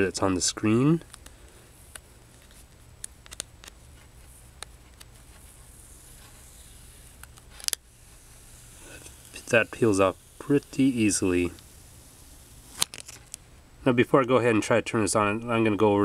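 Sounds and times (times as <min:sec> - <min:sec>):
film peeling clicks: 0:01.0 - 0:05.5, 0:06.2 - 0:07.9, 0:12.6 - 0:13.4
fingernail scratching plastic film: 0:01.9 - 0:13.4.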